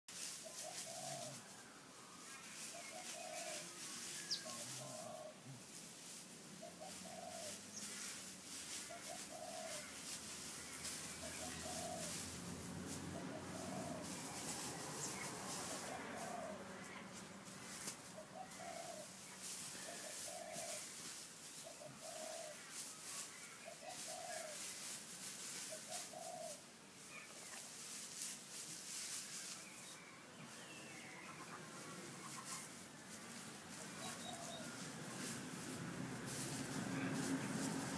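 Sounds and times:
straw rustling: 0.1 - 37.9
dove cooing: 0.4 - 1.6, 2.7 - 5.6, 6.6 - 8.1, 8.8 - 21.0, 21.6 - 23.0, 23.6 - 24.7, 25.6 - 27.6, 33.6 - 37.9.

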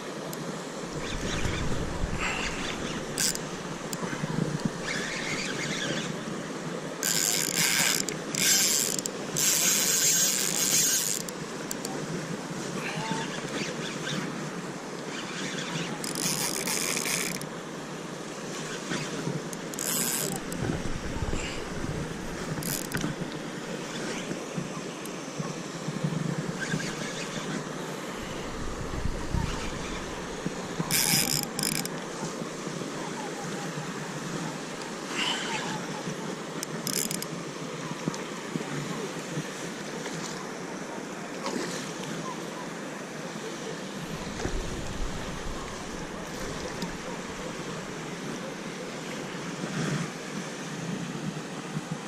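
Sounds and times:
wind noise on microphone: 0.9 - 6.1, 20.0 - 23.3, 28.2 - 31.6, 44.0 - 48.0
fishing reel gears whirring: 0.9 - 6.3, 7.0 - 11.9, 13.2 - 14.3, 15.1 - 17.5, 18.6 - 24.4, 26.6 - 32.1, 36.6 - 37.3.

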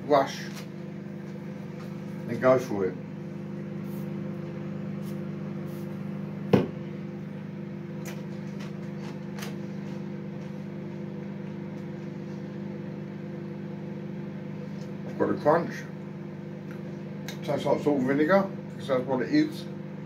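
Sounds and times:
microwave oven humming: 0.0 - 20.0.

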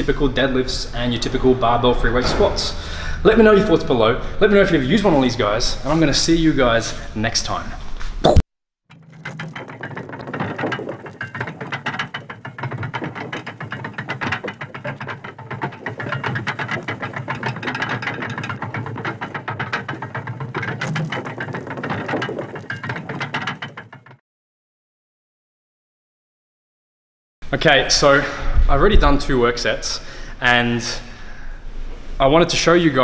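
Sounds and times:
rapid mechanical clicking: 9.2 - 24.2.

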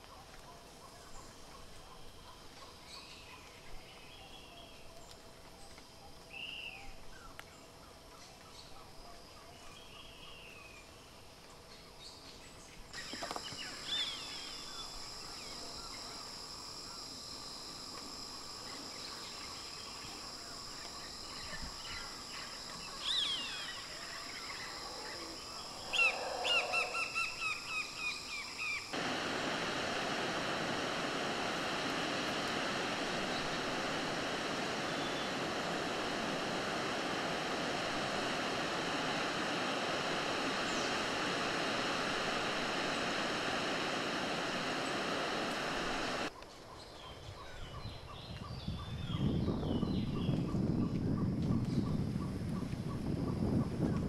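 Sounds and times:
high insect drone: 13.0 - 46.3
waterfall rushing: 29.0 - 46.3.

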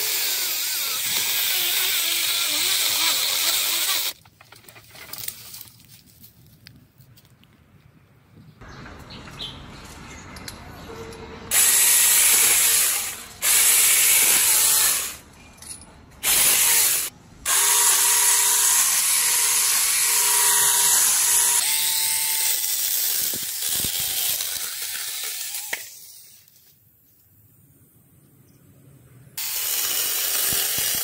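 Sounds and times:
mini chainsaw cutting branches: 0.0 - 4.2, 16.2 - 26.0, 29.4 - 31.0.

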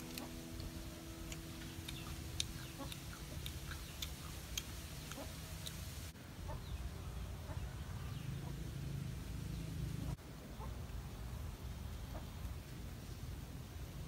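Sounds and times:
chickens clucking: 0.0 - 6.8, 7.4 - 8.6, 12.1 - 12.3.

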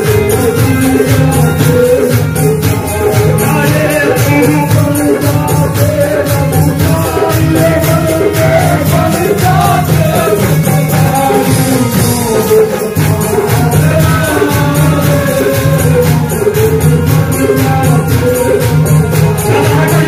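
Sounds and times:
hand percussion with jingles: 0.0 - 20.0
harmonium: 0.0 - 20.0
man singing into a microphone: 0.0 - 20.0.

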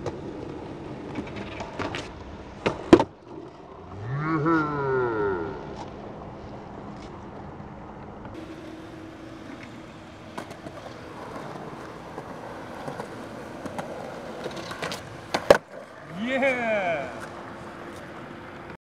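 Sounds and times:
skateboard wheels rolling on concrete: 0.0 - 18.8
faint skateboard clicks: 9.4 - 16.0, 17.1 - 18.8.

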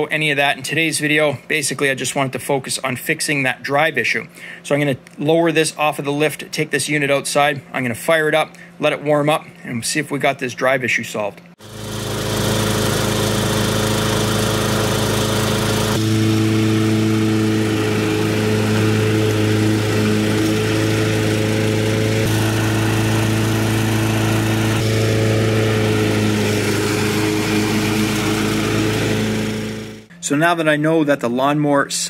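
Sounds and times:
lawnmower engine running: 11.6 - 30.1.

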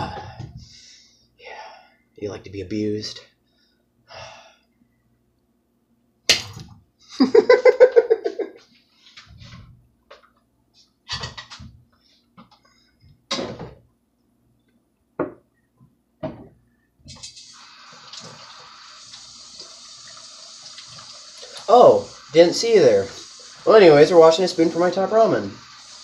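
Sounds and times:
man laughing: 7.1 - 8.6
dishes clattering: 11.1 - 11.7.

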